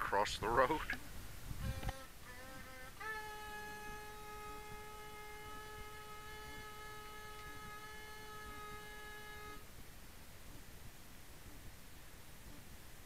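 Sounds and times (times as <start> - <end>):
wind instrument long steady note: 1.6 - 9.7.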